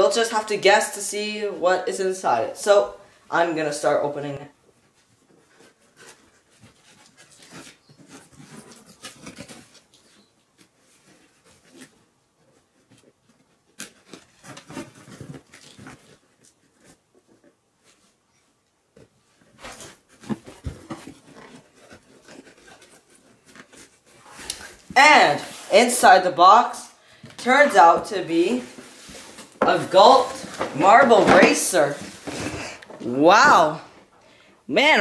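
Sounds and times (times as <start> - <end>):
cardboard flaps rustling: 18.9 - 26.0, 27.2 - 34.0.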